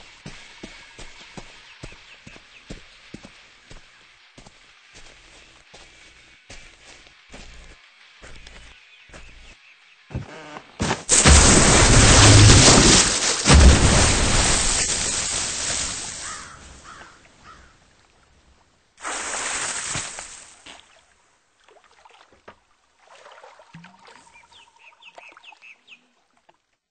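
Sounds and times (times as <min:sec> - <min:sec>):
shorter water splash: 0:11.1 - 0:16.5, 0:19.0 - 0:20.6
big water splash: 0:11.1 - 0:16.6, 0:19.0 - 0:20.6.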